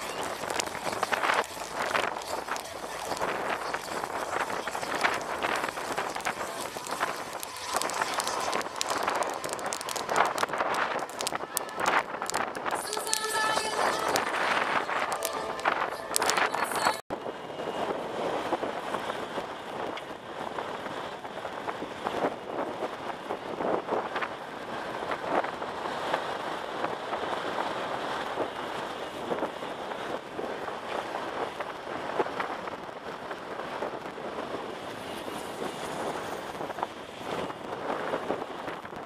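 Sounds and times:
wind noise on microphone: 0:00.0 - 0:39.0.

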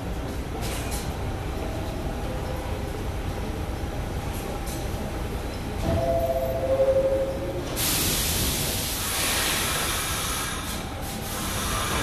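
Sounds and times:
two-note descending chime: 0:05.9 - 0:07.6
air release hiss: 0:07.7 - 0:12.0.

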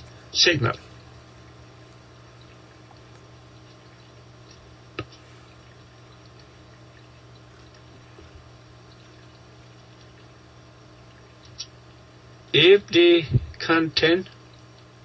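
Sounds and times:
low electrical hum and hiss: 0:00.0 - 0:15.0.

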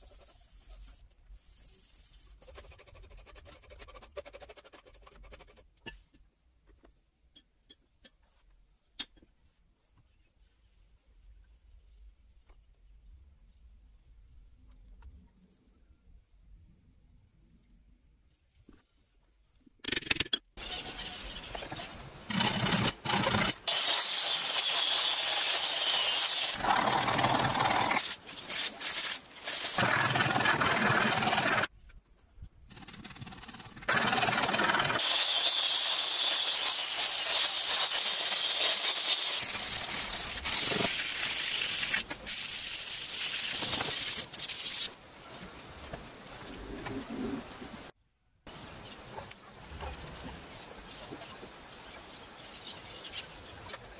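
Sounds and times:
sanding wood rasping hiss: 0:23.7 - 0:31.7, 0:33.9 - 0:44.9.

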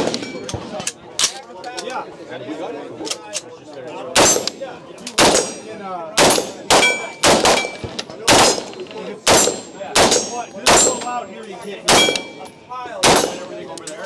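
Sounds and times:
rifle shots: 0:04.2 - 0:04.6, 0:05.2 - 0:05.6, 0:06.2 - 0:11.1, 0:11.9 - 0:12.4, 0:13.0 - 0:13.5.

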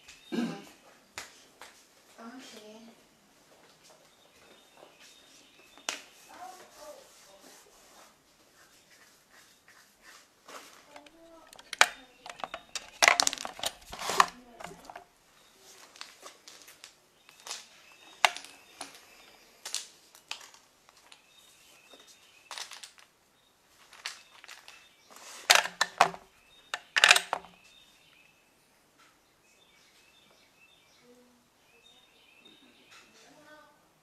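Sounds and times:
short clicks and knocks: 0:10.9 - 0:15.1, 0:25.5 - 0:27.5
faint bird chirps: 0:27.5 - 0:33.8.

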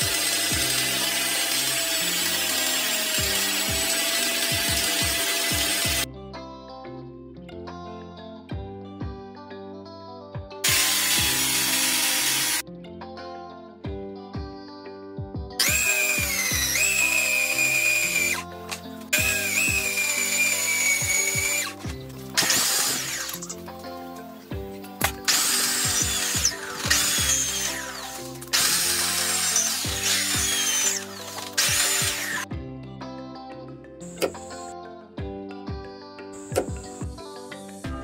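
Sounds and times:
electric drill boring into steel: 0:00.0 - 0:06.1, 0:10.6 - 0:12.6, 0:15.6 - 0:23.7, 0:25.0 - 0:32.5
background music: 0:00.0 - 0:38.0.

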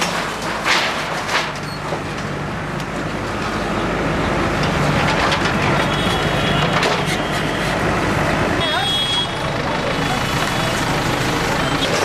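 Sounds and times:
metal debris crashing: 0:00.0 - 0:02.2
diesel engine running under load: 0:00.0 - 0:12.0.

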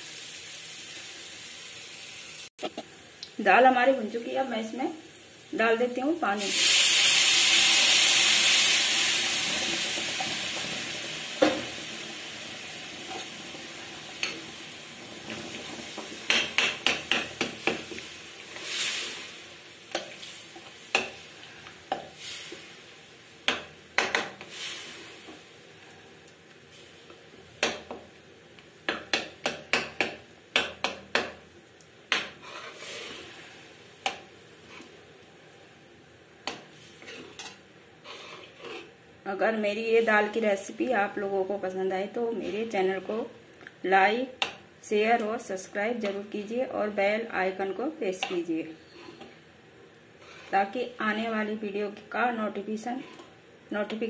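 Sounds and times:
water sizzling in hot pan: 0:00.0 - 0:35.3, 0:36.6 - 0:39.0
metal ladle scraping pan: 0:32.3 - 0:33.3, 0:37.0 - 0:38.9, 0:48.2 - 0:49.3, 0:50.2 - 0:50.6, 0:53.0 - 0:53.3.

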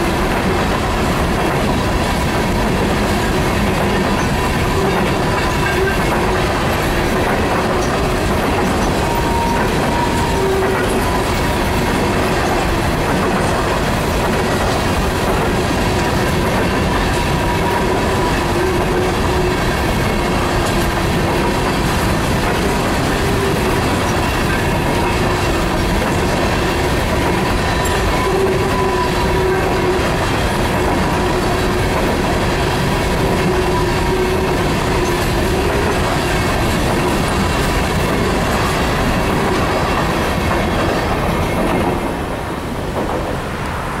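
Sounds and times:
train wheels clattering over rail joints: 0:00.0 - 0:43.7
wheel squeal: 0:08.6 - 0:11.2, 0:27.4 - 0:30.2.

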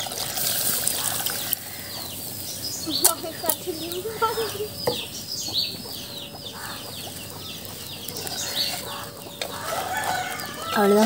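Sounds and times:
small birds chirping: 0:00.0 - 0:11.0
chicken clucking: 0:02.8 - 0:11.0.

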